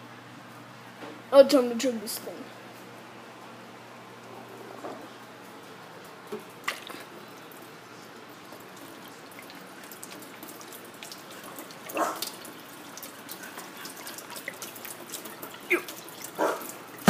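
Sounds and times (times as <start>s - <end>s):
liquid pouring into metal sink: 8.3s - 17.0s.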